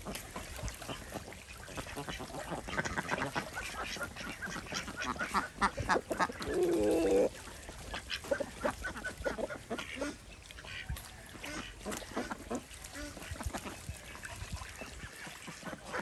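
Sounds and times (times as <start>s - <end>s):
ducks quacking: 0.0s - 16.0s.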